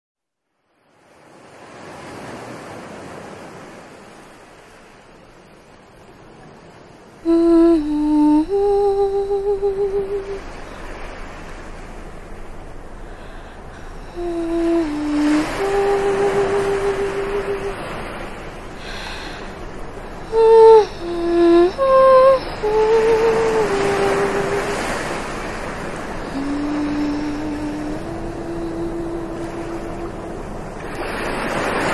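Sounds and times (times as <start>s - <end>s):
ocean surf washing on beach: 0.8s - 31.9s
person singing long notes: 7.2s - 10.8s, 12.6s - 18.0s, 18.8s - 30.8s.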